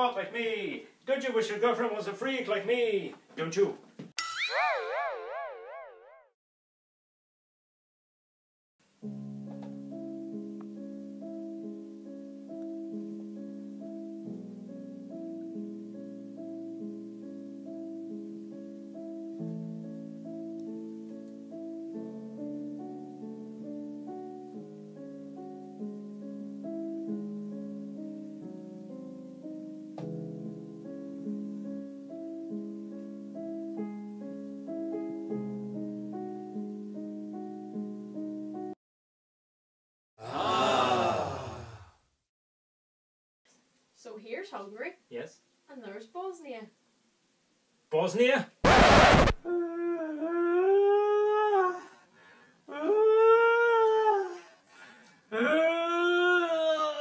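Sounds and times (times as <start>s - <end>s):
digital piano chords and melody: 9.0s - 38.8s
long drawn-out howls: 52.7s - 54.4s.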